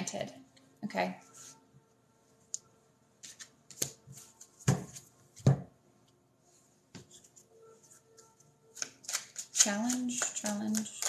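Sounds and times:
cards clicking and tapping: 8.8s - 11.0s.

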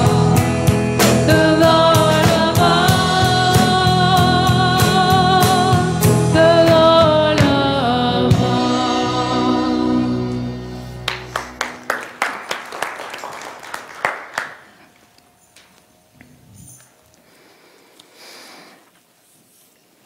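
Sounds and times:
person singing: 0.0s - 10.8s
worship band playing: 0.0s - 15.8s.

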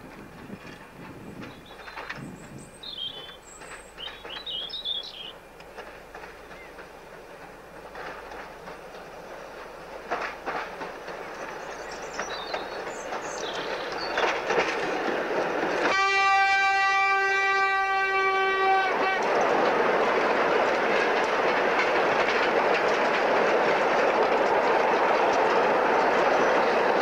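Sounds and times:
wagons rolling on rails: 0.0s - 15.9s, 19.2s - 27.0s
wheels clacking over rail joints: 0.0s - 27.0s
horn long steady note: 15.9s - 19.3s.

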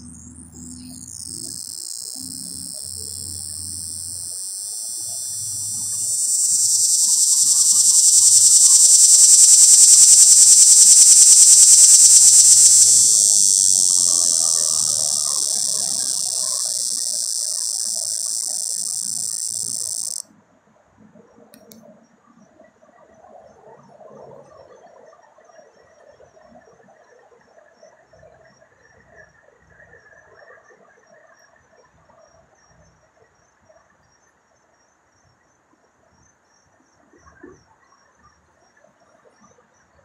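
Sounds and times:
cicada buzzing: 0.0s - 20.2s.

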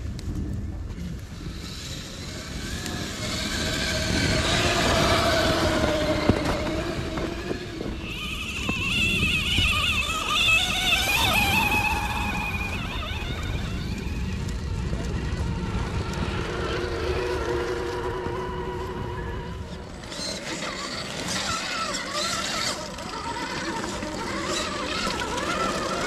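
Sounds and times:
rc truck electric motors whining: 0.1s - 26.0s.

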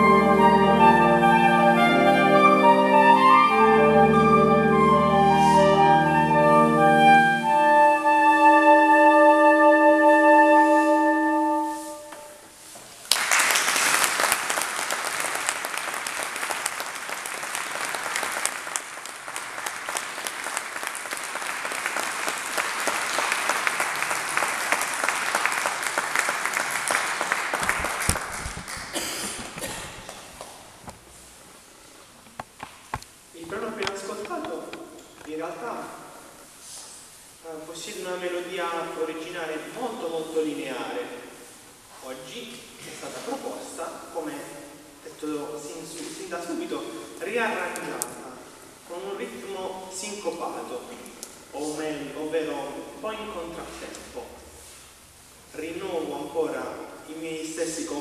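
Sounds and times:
saxophone quartet playing: 0.0s - 12.5s
audience applauding: 13.0s - 30.6s.

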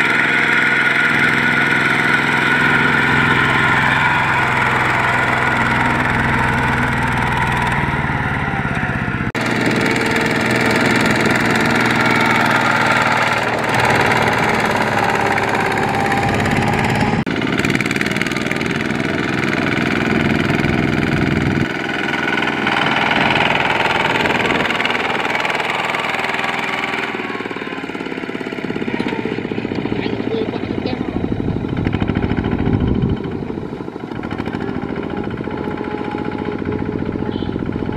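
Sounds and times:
diesel tractor engines running: 0.0s - 37.9s.

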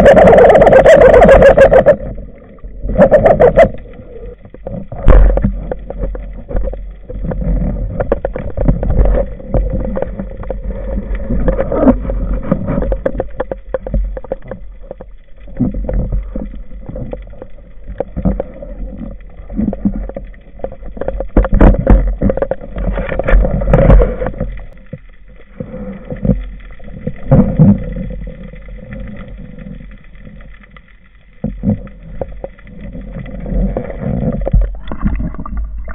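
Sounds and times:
knocks and rubbing underwater: 0.0s - 35.9s
muffled underwater water movement: 0.0s - 35.9s.

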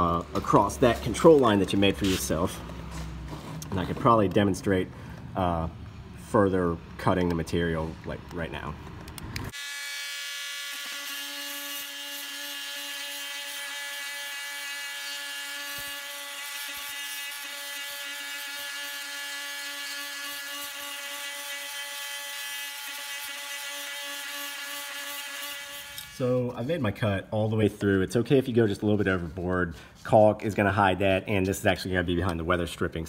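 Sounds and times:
oscillating multitool cutting wood: 9.2s - 26.4s.

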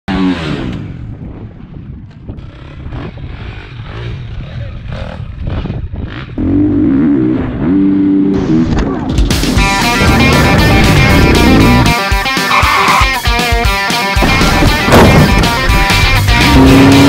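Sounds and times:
motocross bike engine revving: 0.1s - 1.2s, 2.3s - 17.0s
wind buffeting camera: 0.7s - 6.4s.

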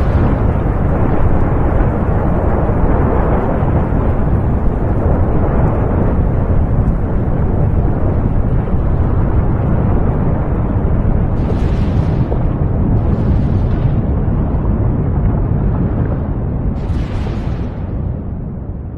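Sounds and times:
volcano rumbling: 0.0s - 18.9s.

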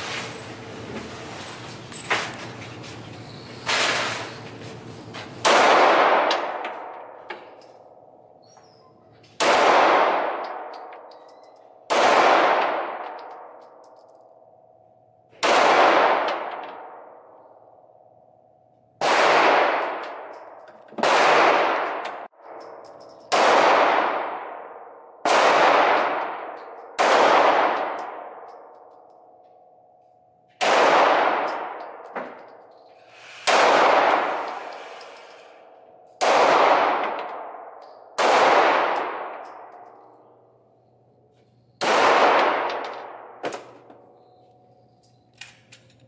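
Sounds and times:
pistol shots echoing: 5.4s - 8.2s, 9.4s - 11.1s, 11.8s - 13.6s, 15.4s - 17.3s, 19.0s - 28.7s, 30.6s - 32.1s, 33.5s - 34.6s, 36.2s - 40.6s, 41.8s - 44.2s.

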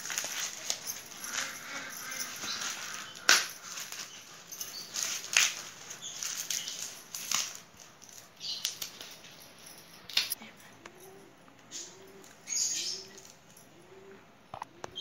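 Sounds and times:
corn husks tearing: 0.0s - 7.6s.

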